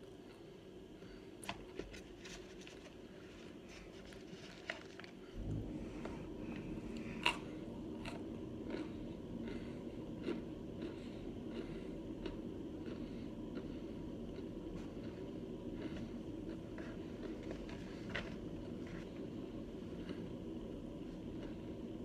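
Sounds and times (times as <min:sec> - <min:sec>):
crunchy chewing: 0:06.4 - 0:22.0.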